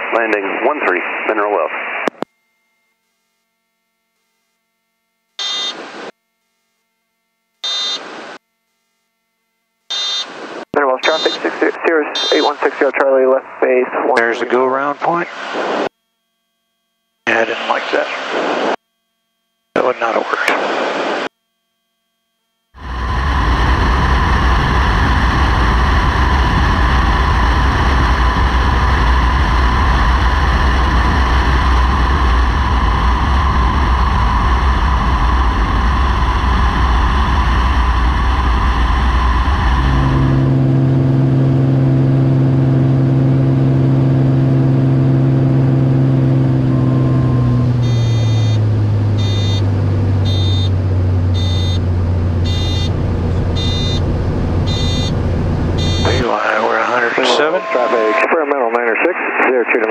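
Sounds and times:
electronic beeps: 12.1s - 12.6s, 47.8s - 48.6s, 49.2s - 49.6s, 50.2s - 55.2s, 55.8s - 58.6s
wind noise: 22.8s - 41.0s
aircraft engine and propeller drone: 22.8s - 58.4s.

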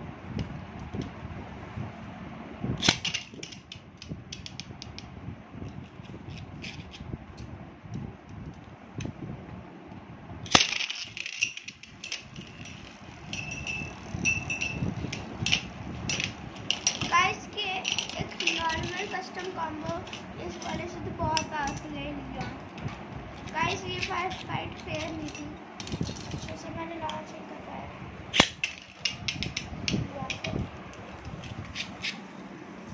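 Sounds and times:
spinning tops clacking in plastic tray: 10.5s - 21.9s, 23.4s - 27.2s
spinning tops clicking and clattering: 10.5s - 21.9s.

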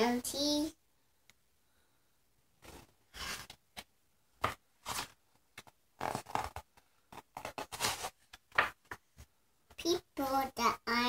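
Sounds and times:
cardboard book pages turning: 2.6s - 9.0s.

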